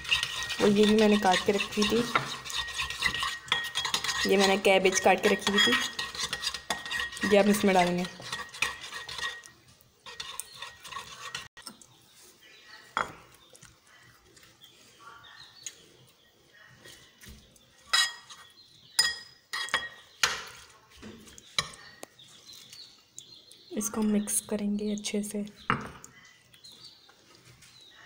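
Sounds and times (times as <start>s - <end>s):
spoon stirring: 0.0s - 11.8s, 17.9s - 20.7s
spoon clinking against bowl: 0.1s - 9.5s, 19.0s - 20.1s.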